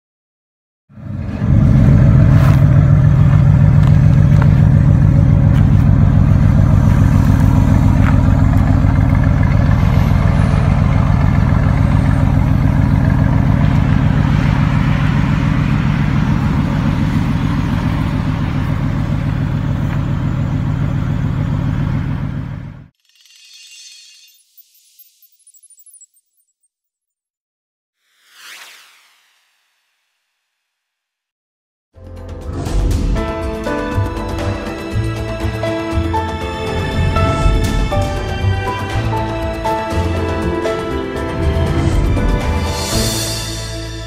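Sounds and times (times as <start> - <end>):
car engine starting and idling: 1.0 - 22.9, 32.4 - 43.9.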